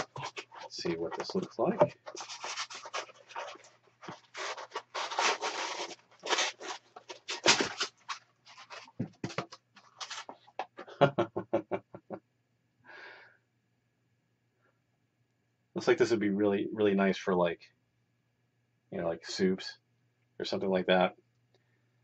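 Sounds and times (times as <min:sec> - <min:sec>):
cardboard box scraping and rustling: 0:00.0 - 0:09.4.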